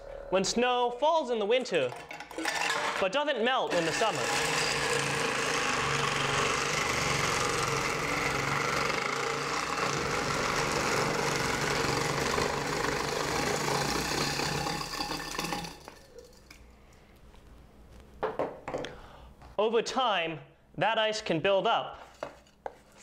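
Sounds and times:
electric ice shaver motor hum: 3.7 - 16.1
ice crunching being shaved: 3.7 - 16.3.

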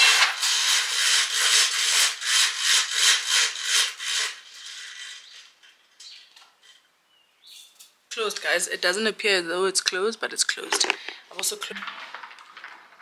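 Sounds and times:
roller blind rasping: 0.0 - 6.8.

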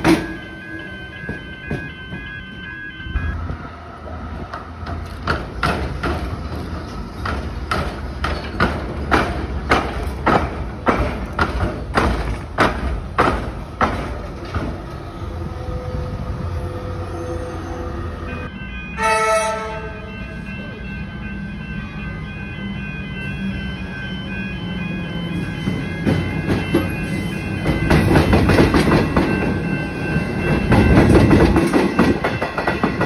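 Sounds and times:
tram wheels clunking over rails: 0.0 - 15.4, 25.2 - 33.0
low rumble of tram running gear: 19.9 - 33.0.

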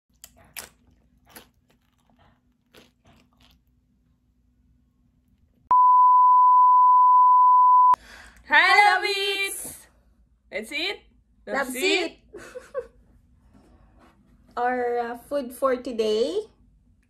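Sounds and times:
chips being chewed: 0.1 - 4.1
loud bleep tone: 5.7 - 8.0.

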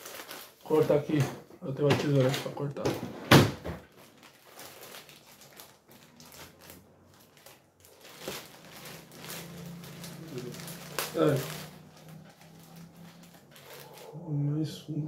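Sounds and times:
plastic packaging crinkling: 0.0 - 1.2, 3.8 - 14.2.

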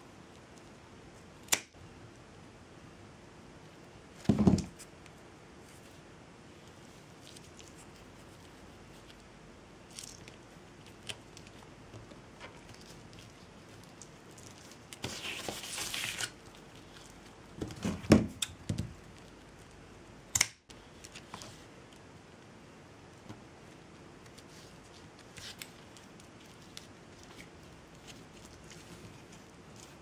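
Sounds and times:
sharp click: 20.3 - 20.6.

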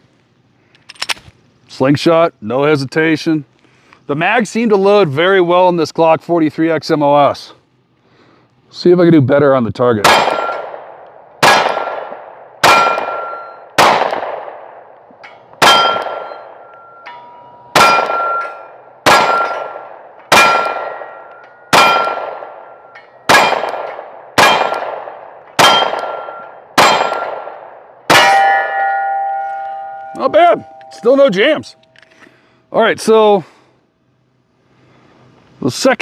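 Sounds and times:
pistol shots: 10.0 - 16.9, 17.7 - 30.0
metallic ring of struck target: 10.2 - 10.7, 12.6 - 13.6, 15.2 - 23.8, 25.6 - 27.4, 28.1 - 31.8.

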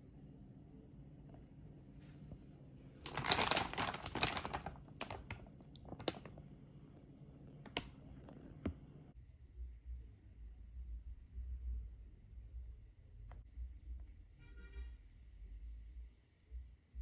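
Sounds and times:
plastic bag crinkling: 3.0 - 6.4.

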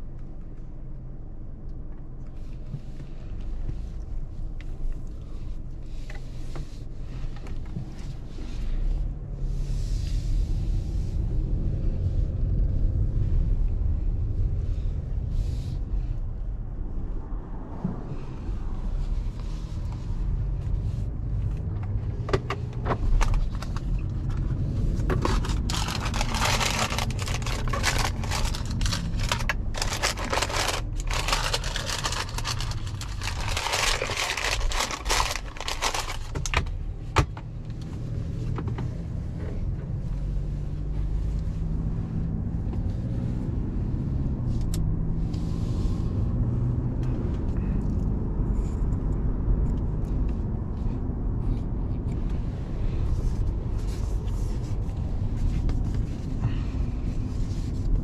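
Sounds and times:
car engine and tyre rumble: 0.0 - 58.0
clicks scrapes and rustles: 21.5 - 37.9.

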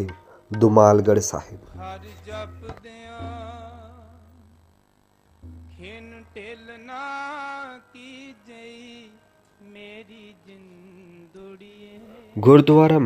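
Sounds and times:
voice chanting wavering notes: 0.0 - 4.6, 5.4 - 9.2.

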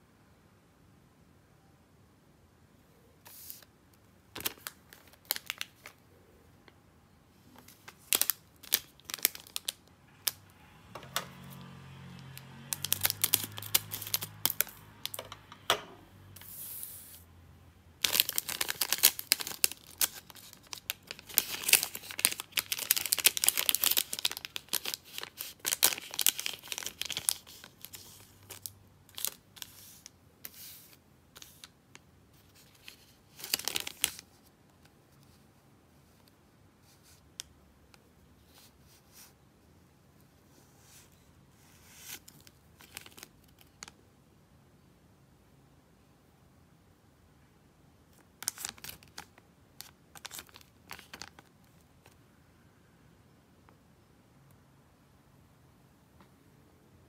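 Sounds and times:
wrapper crinkling and tearing: 4.3 - 6.0, 7.6 - 10.4, 11.3 - 15.2, 18.0 - 31.7, 32.4 - 34.4, 42.0 - 44.0, 48.3 - 52.2.

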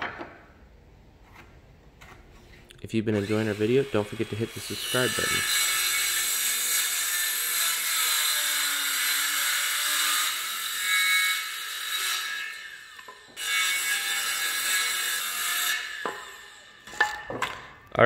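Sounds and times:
circular saw cutting wood: 3.1 - 17.2.

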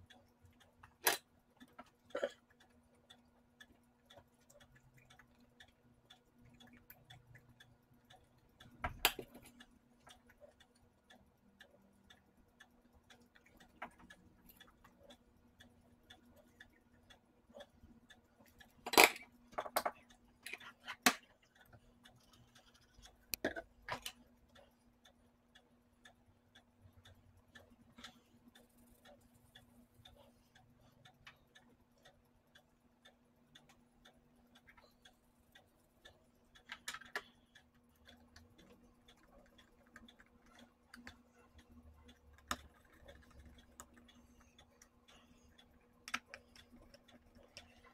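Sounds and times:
faint steady hum: 0.0 - 47.9
clicks and taps of small tools: 18.8 - 21.3.

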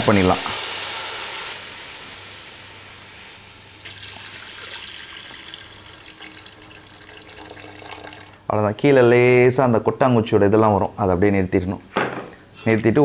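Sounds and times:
liquid pouring into metal pot: 3.8 - 8.4.

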